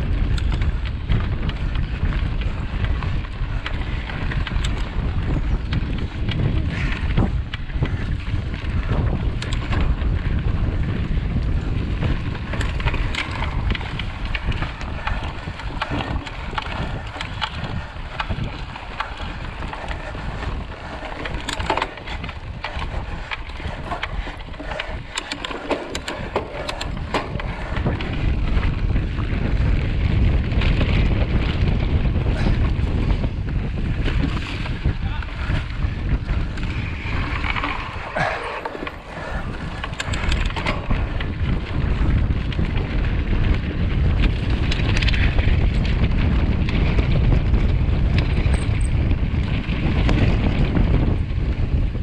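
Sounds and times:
tyres rumbling on dirt: 0.0s - 51.9s
bike clicks and rattles: 0.0s - 52.0s
wind buffeting microphone: 0.0s - 52.0s.

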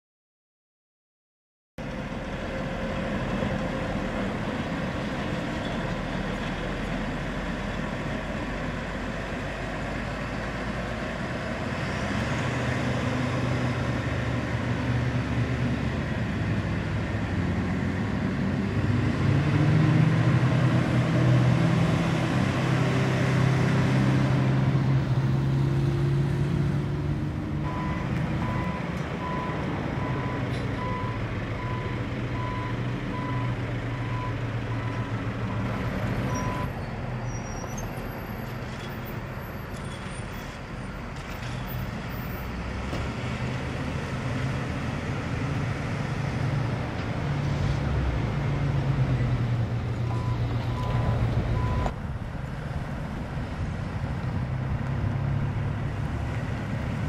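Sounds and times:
diesel engine running: 42.2s - 57.0s.

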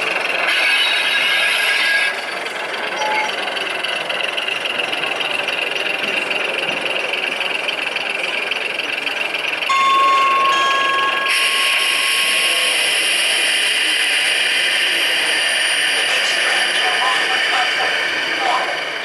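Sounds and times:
busy exhibition hall noise: 0.0s - 19.0s
electronic beep tone: 9.7s - 12.9s.

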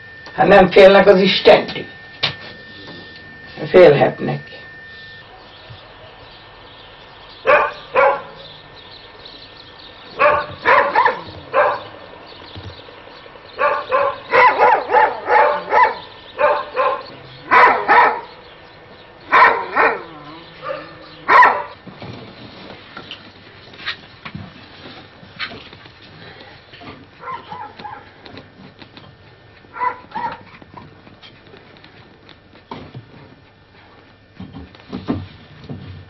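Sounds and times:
dog barking: 7.4s - 8.4s, 10.2s - 12.0s, 13.6s - 18.4s, 19.3s - 21.8s, 27.2s - 28.1s, 29.7s - 30.5s.

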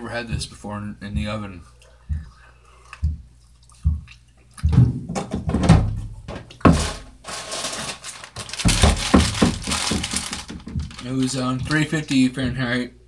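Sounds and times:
knocks and thumps on counter: 8.6s - 11.0s.

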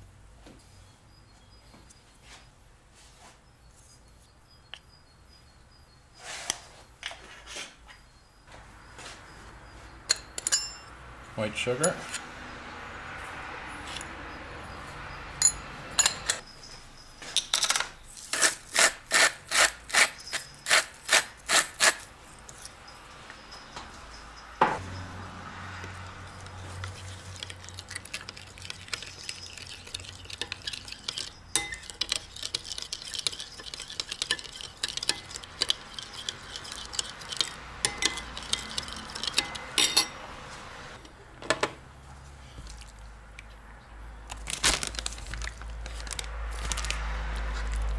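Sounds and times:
metal clinking on ceramic: 10.1s - 11.0s, 15.4s - 16.6s, 27.4s - 40.2s
spoon scraping ceramic bowl: 26.2s - 40.2s.

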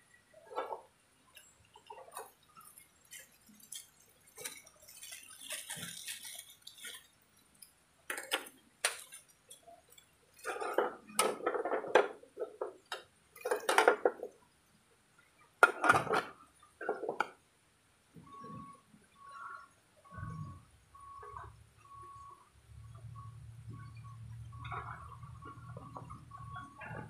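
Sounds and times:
plastic wrapper rustling: 1.8s - 10.8s.

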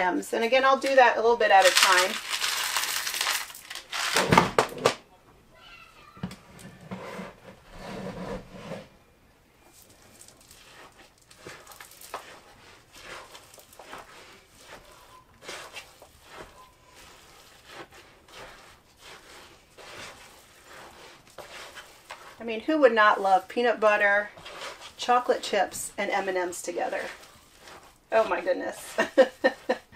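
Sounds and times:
utensil stirring stiff dough: 0.0s - 3.5s, 9.6s - 29.9s.

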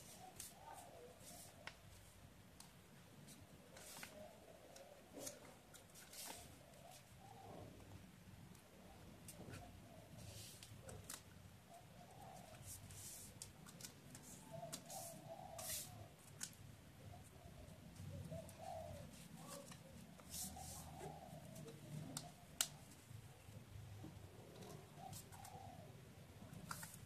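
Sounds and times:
paper crackling and rustling: 2.6s - 7.1s
faint bird calls: 3.8s - 8.0s, 8.7s - 13.3s, 14.2s - 16.2s, 17.0s - 26.4s.

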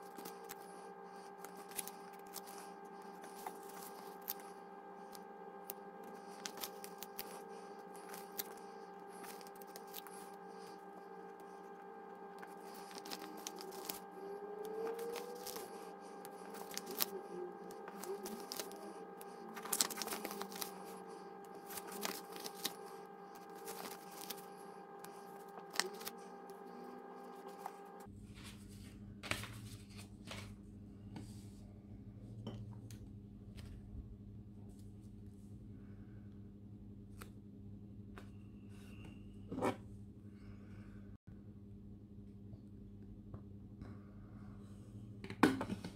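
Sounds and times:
paper rustling and crinkling: 0.0s - 5.2s, 6.0s - 10.8s, 12.4s - 14.1s, 14.7s - 30.5s
steady background hum: 0.0s - 45.9s.

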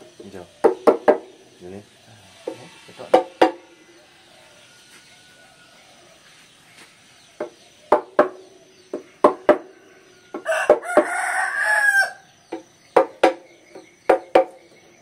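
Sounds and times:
rooster crowing: 2.2s - 6.4s, 9.1s - 12.3s
mallet knocking chisel into wood: 12.5s - 14.6s.

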